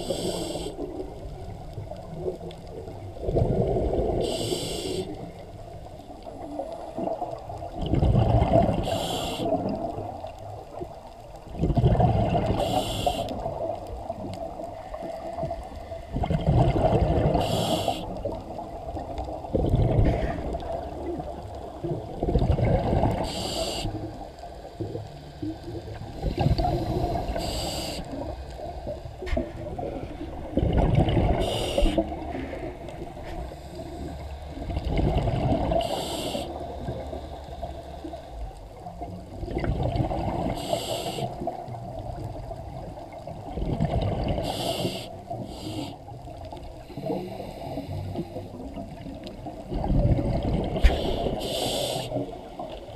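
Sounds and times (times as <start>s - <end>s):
regulator hissing inhale: 0.0s - 1.0s, 4.1s - 5.4s, 8.8s - 9.6s, 12.6s - 13.6s, 17.4s - 18.3s, 23.2s - 24.1s, 26.1s - 28.4s, 31.4s - 34.5s, 35.8s - 38.4s, 40.5s - 41.5s, 44.4s - 46.2s, 46.8s - 48.6s, 50.8s - 52.7s
bubbling underwater exhale: 1.8s - 5.5s, 6.4s - 10.2s, 11.5s - 24.2s, 24.9s - 38.2s, 39.3s - 52.9s.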